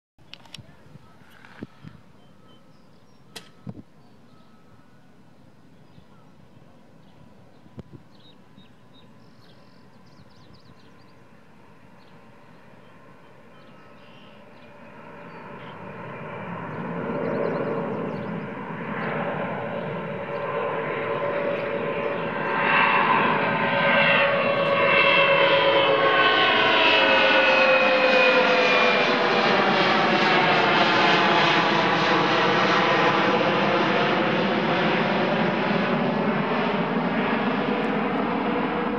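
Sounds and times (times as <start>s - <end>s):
jet airliner taking off: 9.0s - 38.9s.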